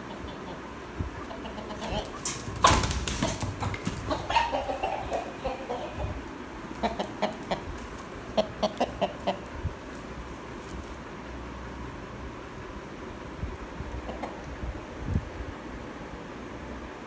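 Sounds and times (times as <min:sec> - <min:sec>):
rooster squawking and clucking: 0:00.0 - 0:10.2.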